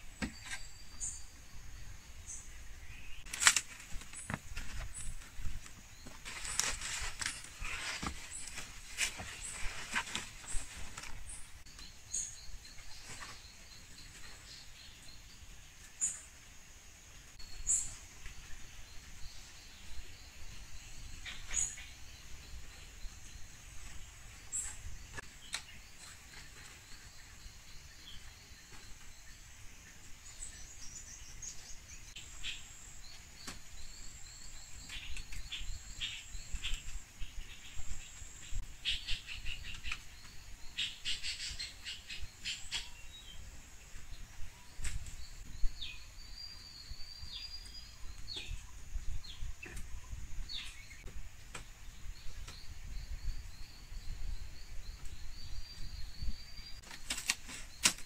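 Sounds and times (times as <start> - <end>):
birds chirping: 0.0 - 16.4, 17.1 - 58.0
palm fronds rustling: 3.2 - 11.7, 56.8 - 58.0.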